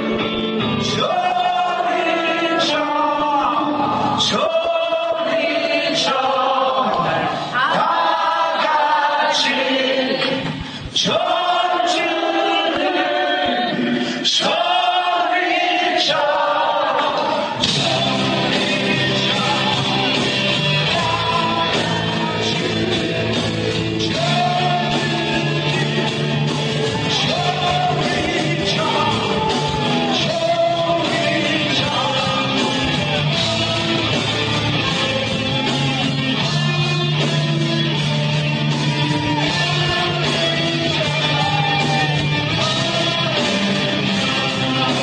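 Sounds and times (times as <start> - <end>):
heavy metal band playing: 0.0 - 6.1, 16.8 - 45.0
man singing: 0.0 - 7.9, 8.6 - 38.2, 38.9 - 45.0
drum and cymbal hits: 17.2 - 45.0.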